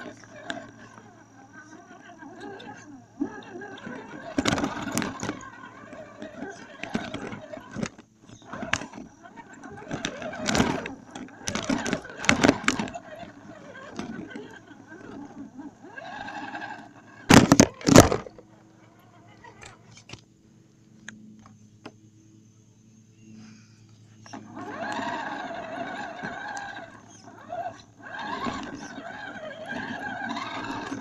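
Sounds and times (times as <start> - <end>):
electric motor and gears whining: 0.0 - 20.3, 24.0 - 31.0
low steady hum: 0.0 - 31.0
toy truck knocking: 3.3 - 18.4, 24.3 - 31.0.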